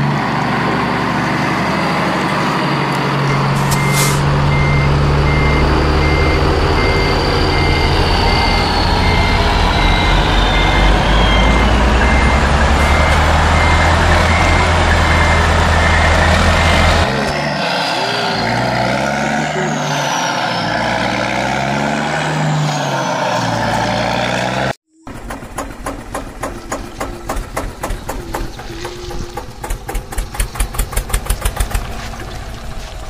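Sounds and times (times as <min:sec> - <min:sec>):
truck diesel engine running: 0:00.0 - 0:33.0
reversing alarm beeping: 0:02.1 - 0:24.1.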